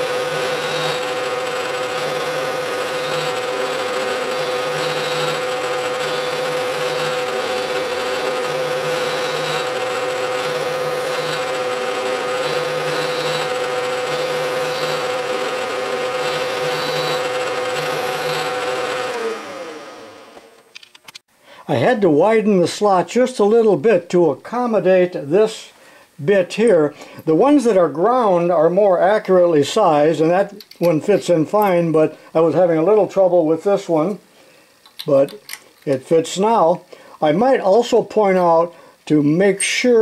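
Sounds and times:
end mill cutting steel: 0:00.0 - 0:20.6
milling machine spindle humming: 0:00.0 - 0:20.6.

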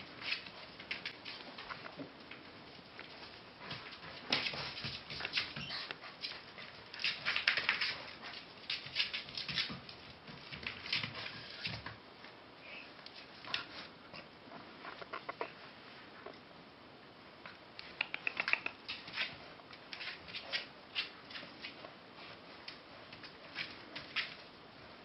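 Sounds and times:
puppies scuffling and play-fighting: 0:00.0 - 0:16.5, 0:17.4 - 0:25.0
claws clicking on floor: 0:00.2 - 0:12.0, 0:17.8 - 0:21.9.

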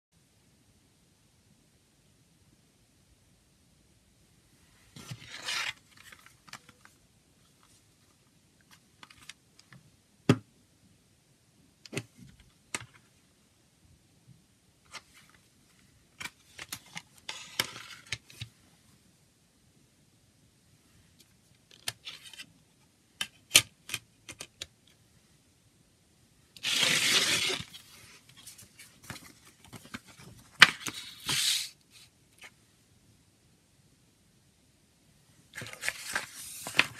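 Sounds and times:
paper booklet rustling: 0:04.9 - 0:09.4, 0:26.6 - 0:32.6, 0:35.5 - 0:36.9.

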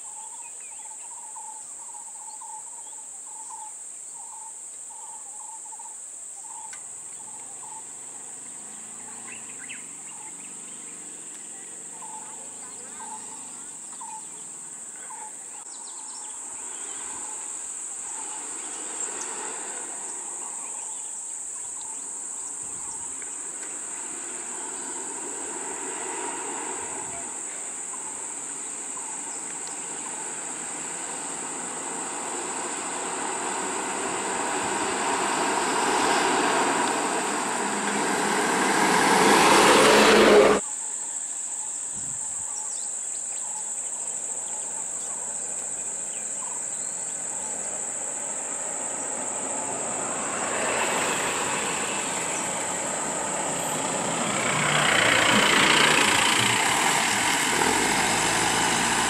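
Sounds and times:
insects droning: 0:00.0 - 0:59.0
bus engine and tyres: 0:06.4 - 0:40.7, 0:43.9 - 0:59.0.

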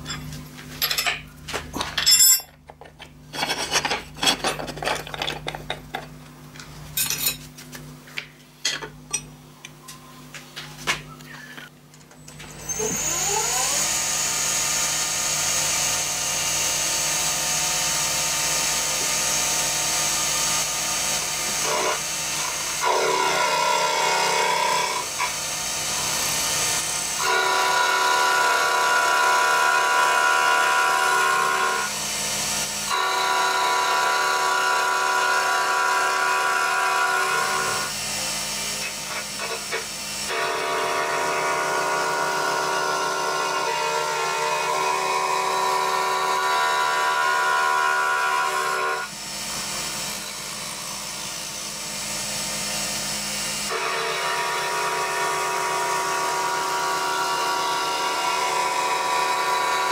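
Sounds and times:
milling machine cutting metal: 0:12.4 - 0:59.9.

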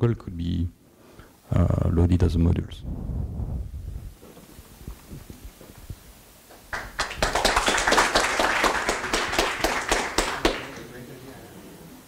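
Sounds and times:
audience clapping: 0:06.5 - 0:11.0.

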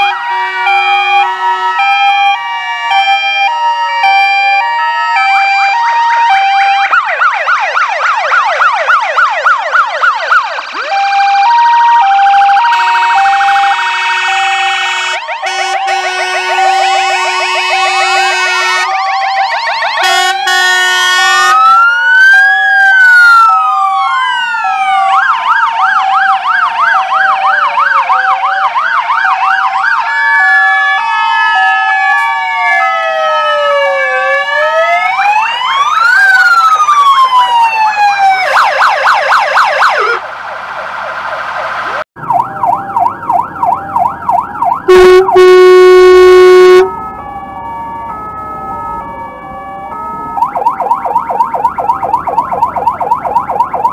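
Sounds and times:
loud steady horn blast: 0:00.0 - 0:02.9, 0:12.7 - 0:19.0, 0:20.0 - 0:21.6, 0:44.9 - 0:47.0
fire engine sirens wailing: 0:00.0 - 0:53.9.

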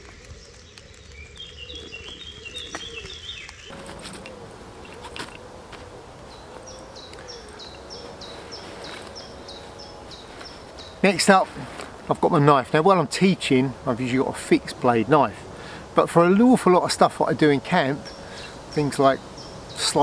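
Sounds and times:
bird chirping: 0:00.0 - 0:11.5, 0:17.7 - 0:20.0
clicks and rustles of equipment: 0:02.7 - 0:05.9.

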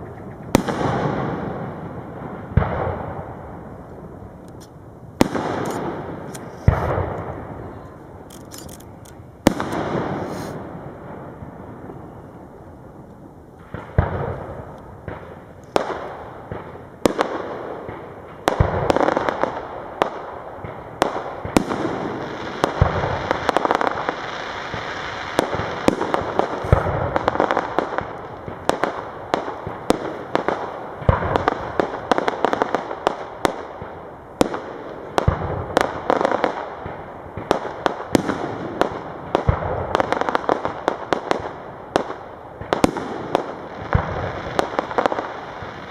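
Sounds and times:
fireworks bursting with sharp bangs: 0:00.0 - 0:45.9.

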